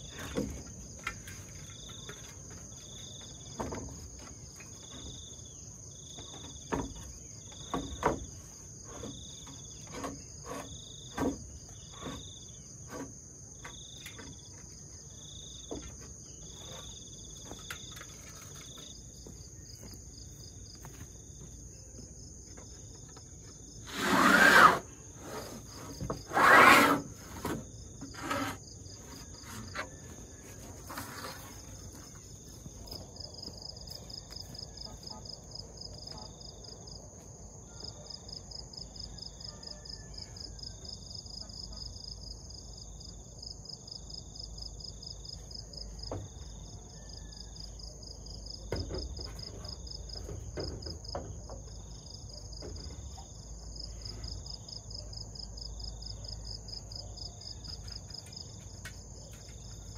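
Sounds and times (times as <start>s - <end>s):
roofing sheets knocking and clicking: 0.1s - 5.2s, 6.2s - 14.9s, 48.6s - 51.9s
loud scraping noises: 8.4s - 14.3s, 23.6s - 33.5s.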